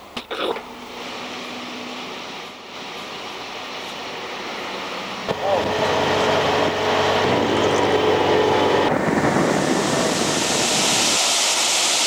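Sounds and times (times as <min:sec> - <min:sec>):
engine drone: 0:00.2 - 0:12.0
road noise: 0:00.2 - 0:12.0
rushing wind: 0:04.1 - 0:12.0.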